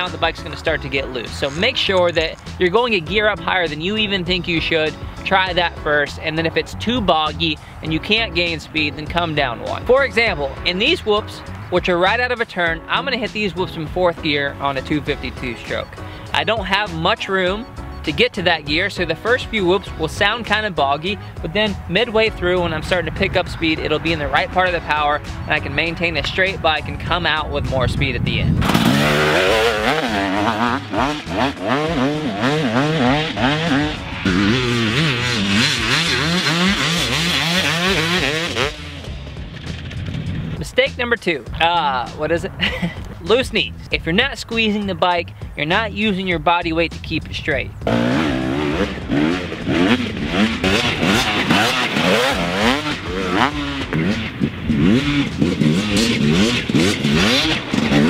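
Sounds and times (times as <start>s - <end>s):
motocross bike engine revving: 28.6s - 40.6s, 47.8s - 58.0s.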